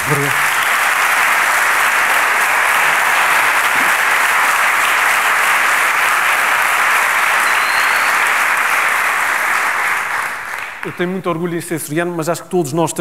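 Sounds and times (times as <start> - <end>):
audience applauding: 0.0 - 11.5.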